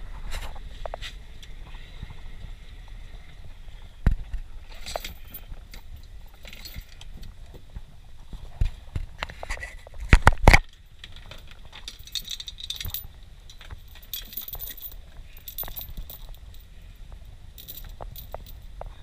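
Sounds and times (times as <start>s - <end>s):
low steady rumble: 0.0s - 19.0s
metallic clinking and jingling: 4.7s - 7.0s, 11.1s - 18.8s.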